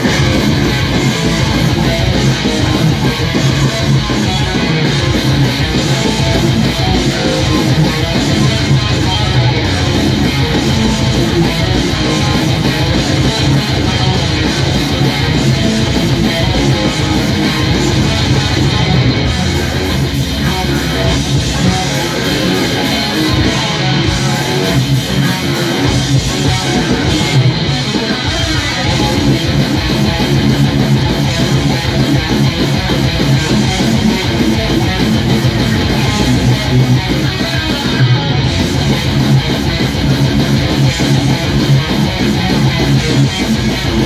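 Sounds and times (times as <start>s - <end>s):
electric guitar metal riff: 0.0s - 44.0s.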